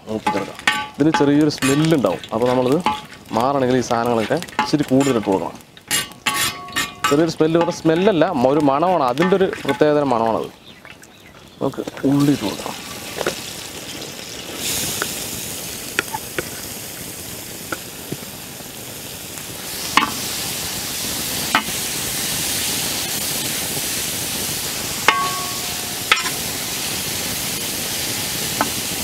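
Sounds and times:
onions sizzling in oil: 0.0 - 29.0
metal spoon scraping pan: 0.2 - 10.5, 20.0 - 20.3, 25.0 - 26.5.

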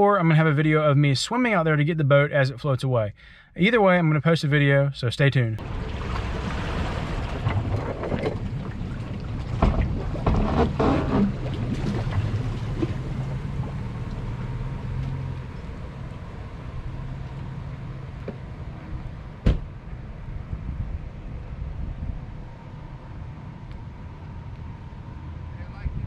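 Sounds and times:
steady low hum: 5.4 - 26.0
knocks and clatter from boat hull: 5.6 - 14.2
water washing along hull: 5.6 - 19.3.

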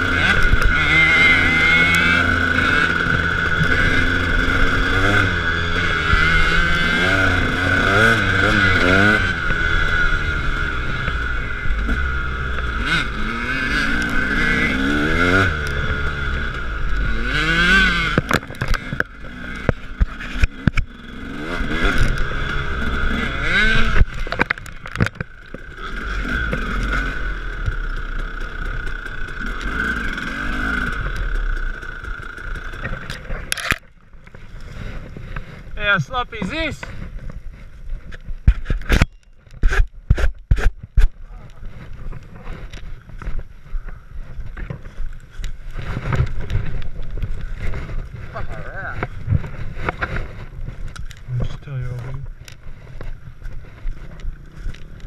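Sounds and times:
dirt bike engine revving: 0.0 - 37.7, 38.5 - 55.0
sharp knocks and clatter: 23.6 - 25.7.

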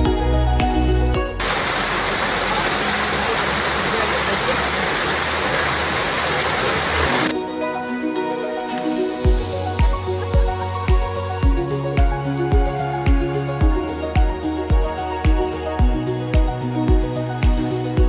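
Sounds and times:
small waterfall splashing over rocks: 1.4 - 7.3
soft background music: 7.3 - 18.0.

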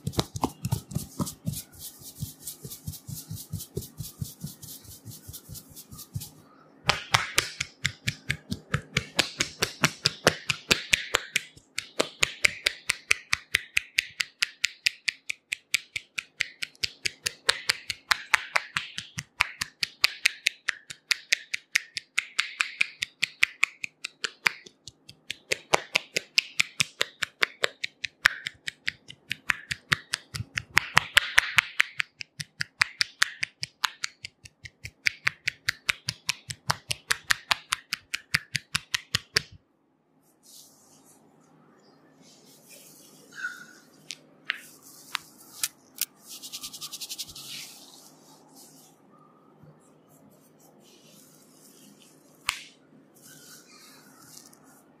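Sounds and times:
hands tapping head: 0.0 - 39.5.

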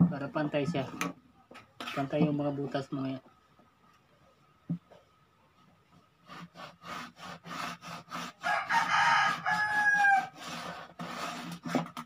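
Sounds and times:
rooster crowing: 8.4 - 10.4.

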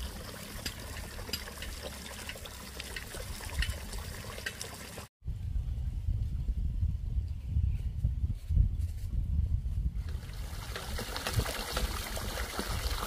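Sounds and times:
water pouring into basin: 10.1 - 13.0.

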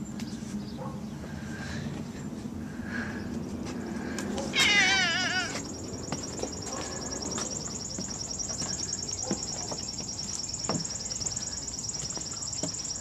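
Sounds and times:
insect trilling: 4.6 - 13.0.

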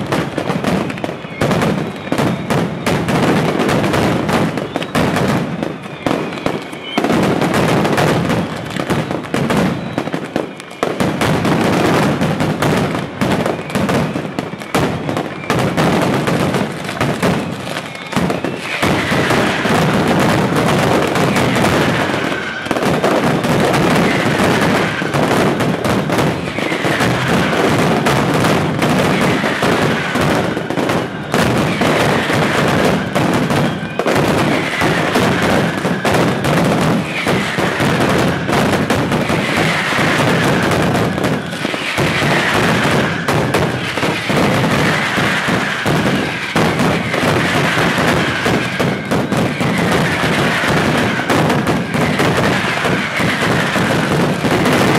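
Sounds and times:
firecrackers banging: 0.0 - 54.9.

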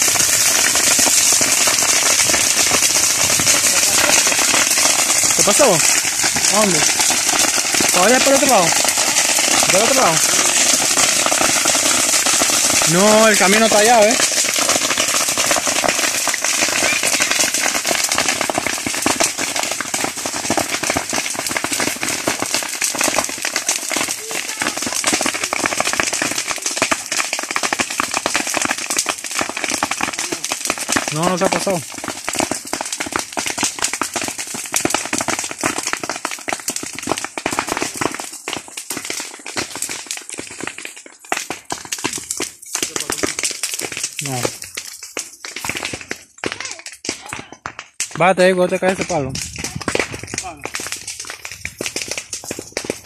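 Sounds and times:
brush fire crackling: 0.0 - 53.0.

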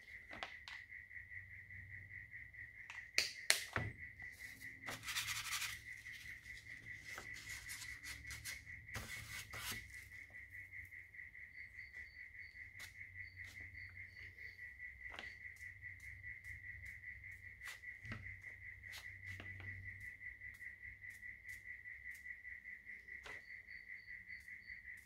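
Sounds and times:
small objects rubbing: 4.5 - 10.0.

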